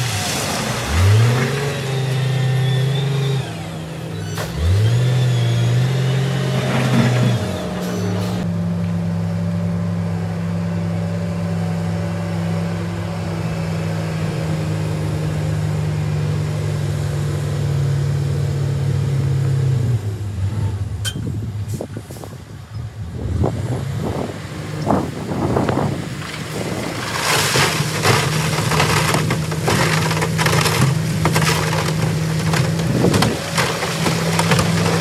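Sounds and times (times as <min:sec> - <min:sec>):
wind noise on microphone: 0:21.0 - 0:27.3.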